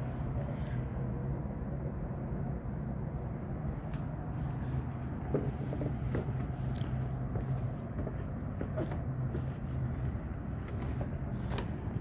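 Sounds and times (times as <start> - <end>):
low mechanical city hum: 0.0 - 12.0.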